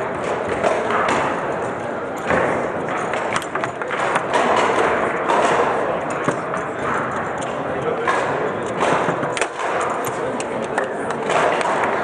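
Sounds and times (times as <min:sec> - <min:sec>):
crowd murmur: 0:00.0 - 0:12.0
table football knocks and thuds: 0:02.2 - 0:07.0, 0:08.0 - 0:10.2.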